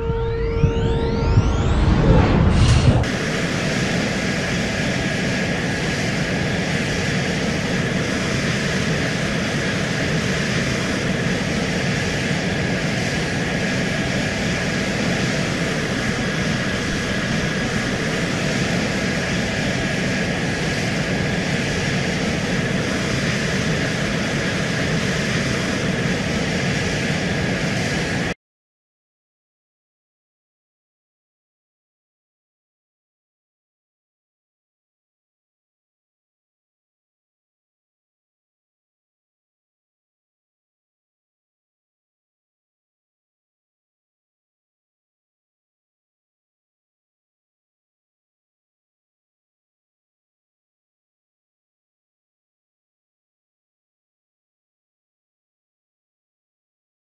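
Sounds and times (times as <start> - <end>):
loud rumbling burst: 0.0 - 28.3
faint high whine: 0.0 - 28.4
jet engine drone: 0.0 - 28.4.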